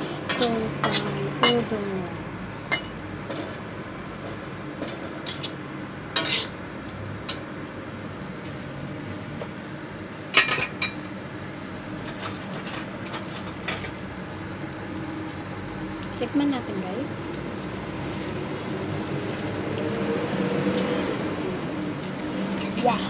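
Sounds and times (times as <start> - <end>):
metal spoon scraping wok: 0.0 - 1.7, 4.9 - 6.6, 22.5 - 23.0.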